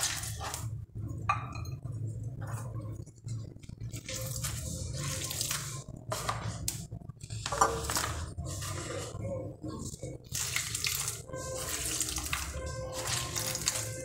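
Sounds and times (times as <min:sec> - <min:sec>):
water splashing and dripping: 0:10.2 - 0:14.0.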